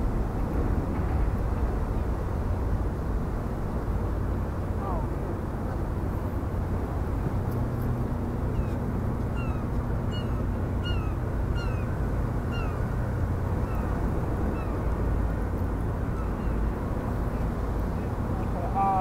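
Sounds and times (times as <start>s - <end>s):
low mechanical rumble: 0.0s - 19.0s
bird mewing calls: 8.5s - 12.9s, 13.6s - 14.9s, 16.1s - 18.2s.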